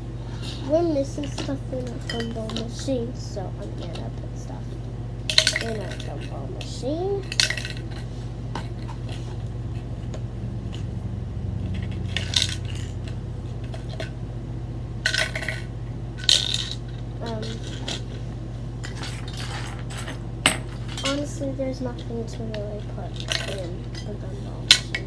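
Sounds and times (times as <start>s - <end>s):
steady low hum: 0.0s - 25.0s
small hard objects clattering: 5.3s - 6.4s, 11.7s - 14.1s, 15.1s - 18.2s.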